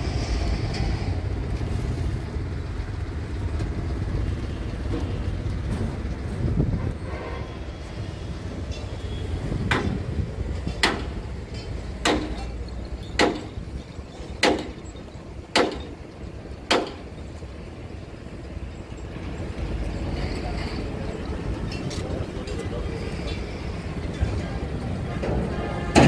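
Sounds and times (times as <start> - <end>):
sharp knocks: 9.7 - 10.0, 10.7 - 11.2, 12.0 - 12.5, 13.2 - 13.6, 14.4 - 14.8, 15.5 - 15.9, 16.7 - 17.1.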